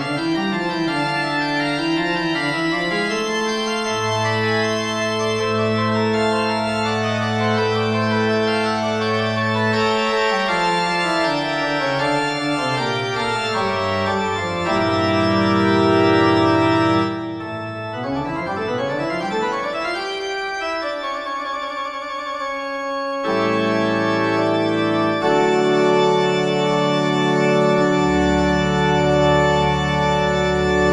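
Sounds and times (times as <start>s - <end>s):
organ music: 0.0s - 30.9s.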